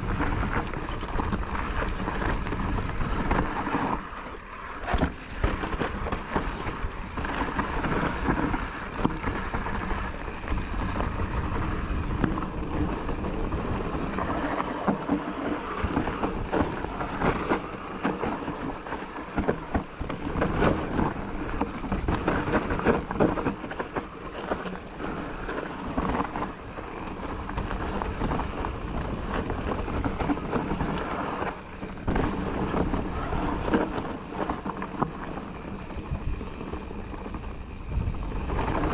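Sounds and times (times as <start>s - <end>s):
bike knocking and rattling: 0.0s - 38.9s
tyres rumbling on trail: 0.0s - 38.9s
wind buffeting microphone: 24.8s - 38.9s.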